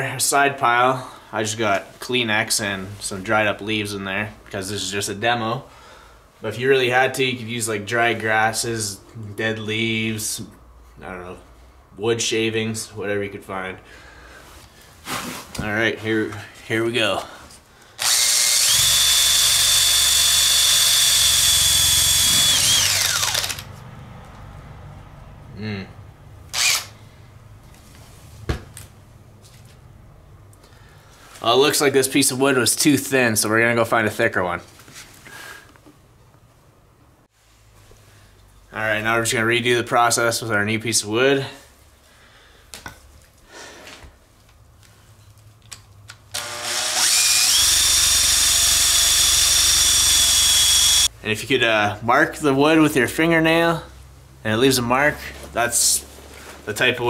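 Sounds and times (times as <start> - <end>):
drill motor whine: 18.0 - 23.7, 26.5 - 26.9, 46.4 - 51.1.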